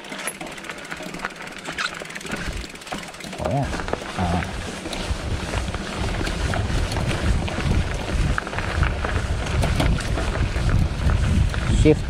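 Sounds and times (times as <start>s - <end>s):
bike clicks and rattles: 0.0s - 12.0s
bike rolling on dirt trail: 0.0s - 12.0s
wind rumbling on microphone: 3.5s - 12.0s.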